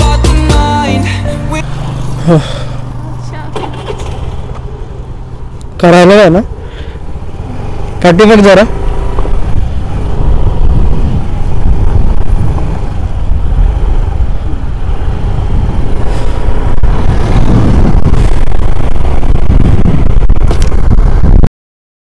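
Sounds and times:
scooter engine running: 1.4 - 19.2
wind noise on microphone: 9.1 - 21.5.

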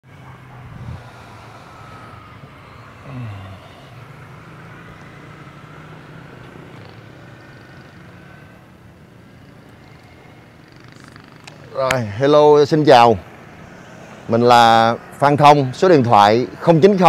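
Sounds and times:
engine hum: 0.0 - 17.0
falling whine: 0.1 - 7.1.

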